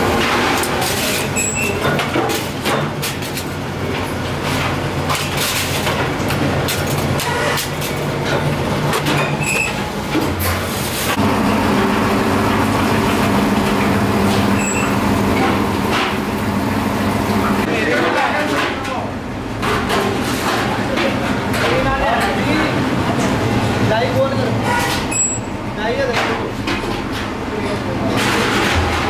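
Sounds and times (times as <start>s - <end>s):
roller machine motor hum: 11.2s - 17.7s.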